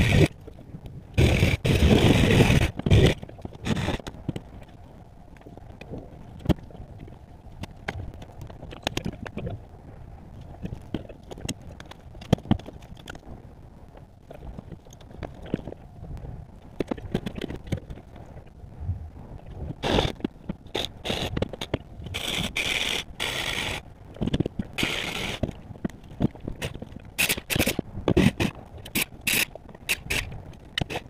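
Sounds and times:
low rumble: 0:18.0 - 0:20.4.

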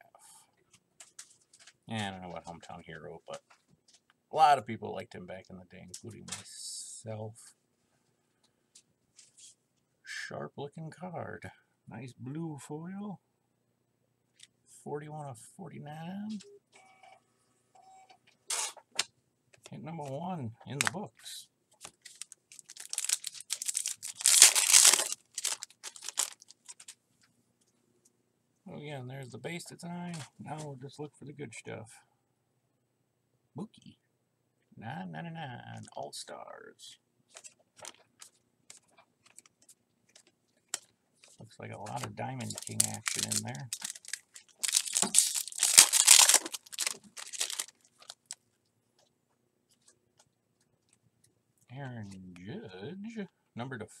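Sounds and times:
foil wrapper tearing and crinkling: 0:21.8 - 0:26.9, 0:41.9 - 0:48.4.

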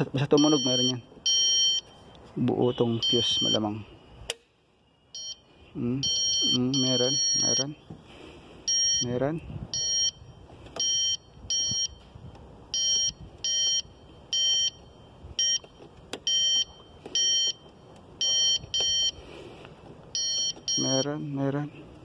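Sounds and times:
circuit tester beeps: 0:00.3 - 0:03.9, 0:04.9 - 0:07.8, 0:08.6 - 0:12.0, 0:12.7 - 0:19.2, 0:20.1 - 0:21.2.

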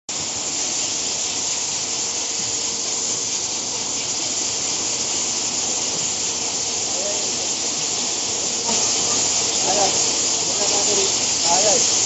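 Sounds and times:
bottling machine high hiss: 0:00.1 - 0:12.0.

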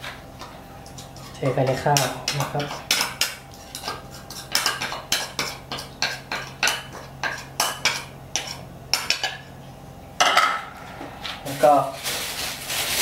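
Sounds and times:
spoon scraping ceramic bowl: 0:00.8 - 0:09.3.

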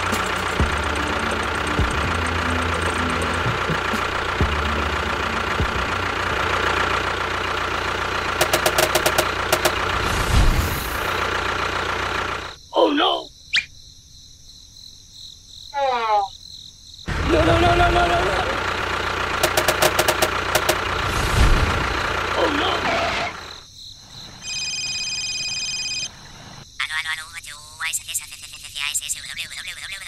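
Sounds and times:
toy tractor motor and gears: 0:08.4 - 0:10.0, 0:19.4 - 0:21.0.

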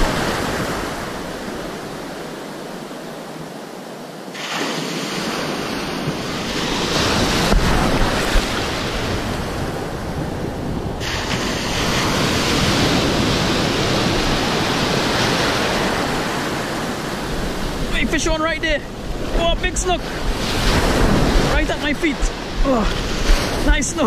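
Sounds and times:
ocean surf breaking: 0:00.0 - 0:24.0
wind on microphone: 0:04.8 - 0:24.0.

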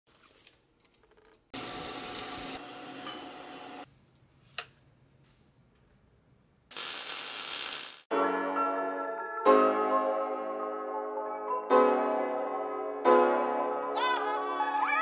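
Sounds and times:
welder arc crackling: 0:06.7 - 0:08.1.

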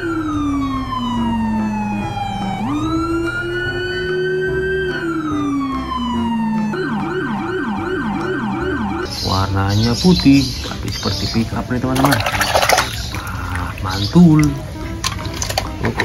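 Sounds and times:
police siren wailing and yelping: 0:00.0 - 0:09.1.

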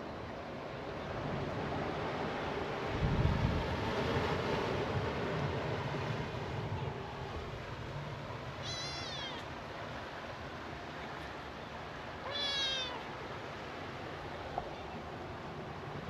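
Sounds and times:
cat meowing: 0:08.6 - 0:09.5, 0:12.2 - 0:13.1.

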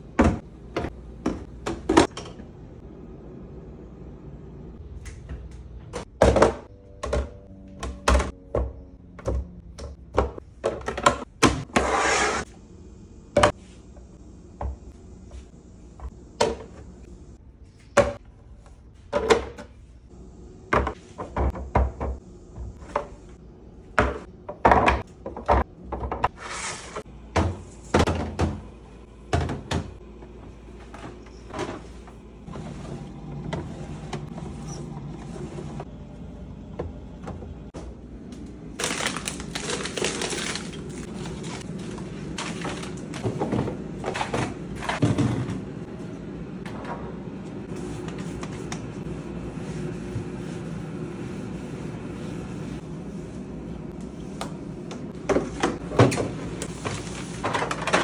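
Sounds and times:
plastic containers clattering: 0:38.8 - 0:45.7, 0:55.2 - 0:58.0.

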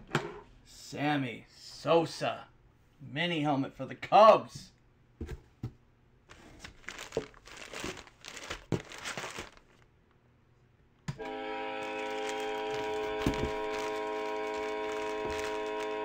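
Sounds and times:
plastic packaging rustling: 0:06.3 - 0:09.9, 0:11.8 - 0:16.0
background music held chord: 0:11.2 - 0:16.0.

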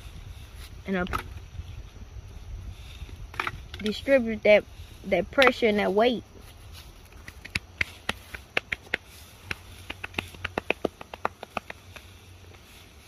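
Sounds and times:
wood stick cracking: 0:07.0 - 0:12.2.

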